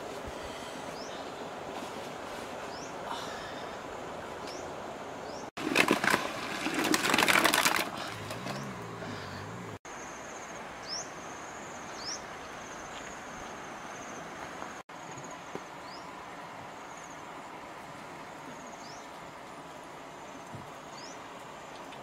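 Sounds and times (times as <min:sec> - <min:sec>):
loud rustling and crackling: 0:05.6 - 0:08.7
birds trilling and chirping: 0:08.0 - 0:09.8.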